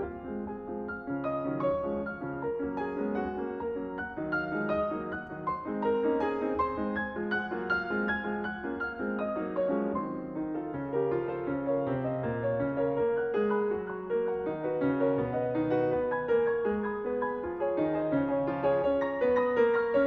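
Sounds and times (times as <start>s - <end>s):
gentle piano music: 0.0s - 20.0s.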